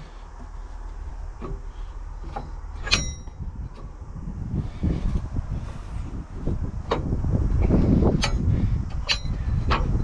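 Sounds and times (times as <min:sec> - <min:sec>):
metal clunks and knocks: 0:00.0 - 0:04.0, 0:06.8 - 0:10.0
sharp metallic clank with ring: 0:02.8 - 0:03.4.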